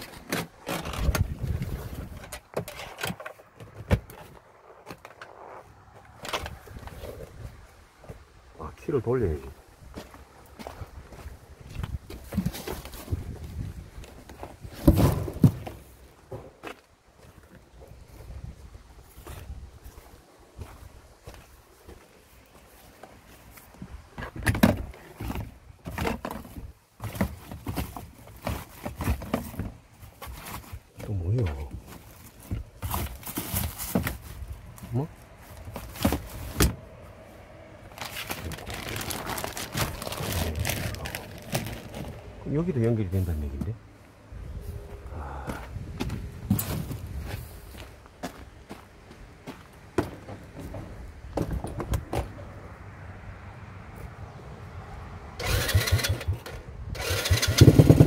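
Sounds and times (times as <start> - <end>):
plastic knocks and clunks: 24.2 - 29.8
cable rustling: 37.9 - 42.4.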